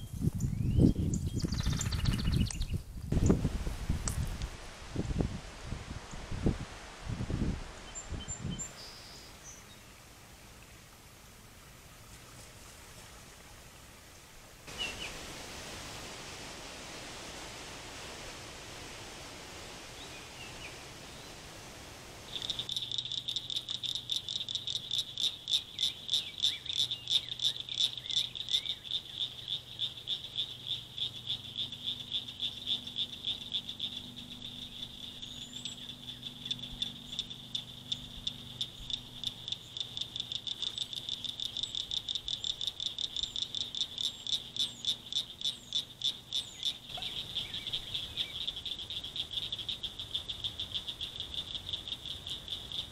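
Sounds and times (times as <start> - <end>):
soft steady hiss: 0.0 - 52.9
frogs calling: 22.3 - 52.9.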